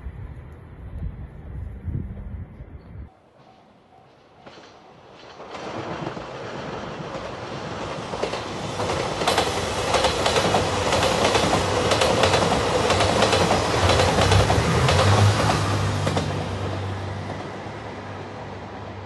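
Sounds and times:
diesel train passing: 0:00.0 - 0:19.0
wheels clacking over rail joints: 0:03.9 - 0:17.7.

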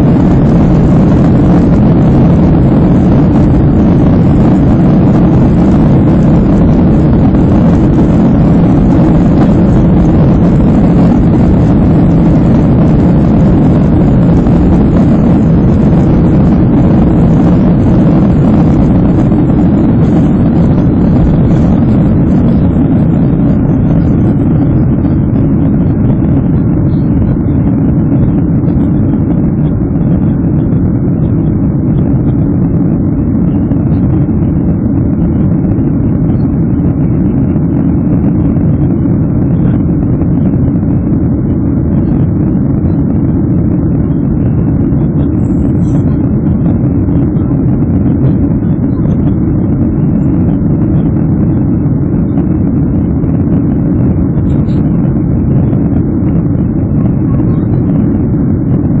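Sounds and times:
jet engine and airflow noise: 0:00.0 - 0:59.0.

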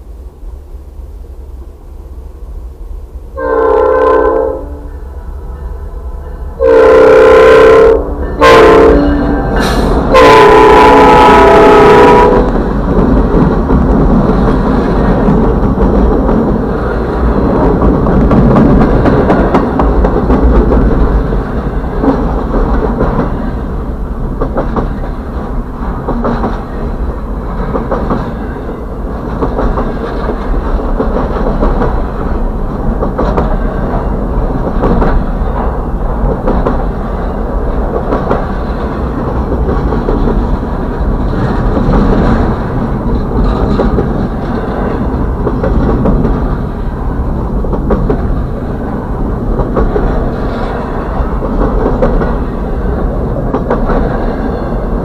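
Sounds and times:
freight train rumbling past: 0:00.0 - 0:55.0
wheels clicking over rails: 0:12.4 - 0:55.0.

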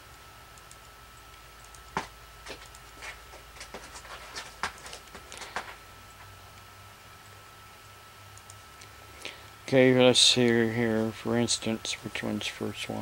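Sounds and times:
faint high tone hum: 0:00.0 - 0:13.0
computer controls clicking: 0:00.6 - 0:01.9, 0:08.3 - 0:08.9.

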